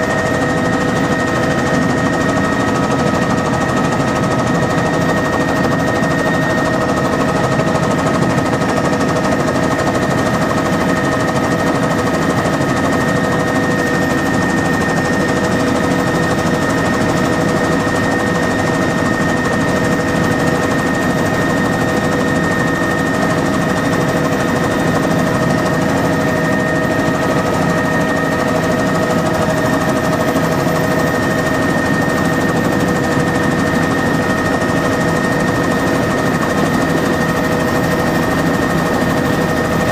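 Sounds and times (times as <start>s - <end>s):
helicopter rotor and engine noise: 0.0s - 39.9s.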